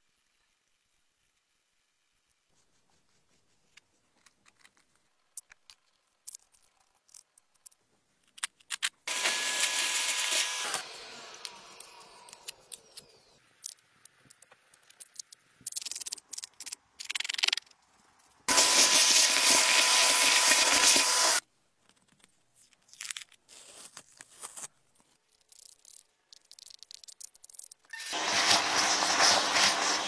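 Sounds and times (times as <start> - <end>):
shop vacuum running: 9.1 - 13.3, 18.5 - 21.4, 28.0 - 30.0.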